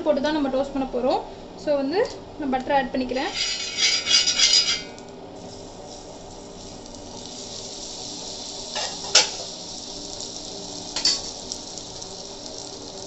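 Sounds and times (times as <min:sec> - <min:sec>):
butter sizzling in pan: 0:03.4 - 0:13.0.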